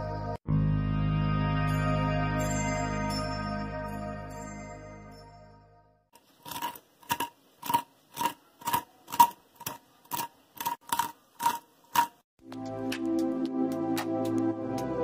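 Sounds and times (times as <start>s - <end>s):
fork tapping crispy food: 6.2s - 12.2s.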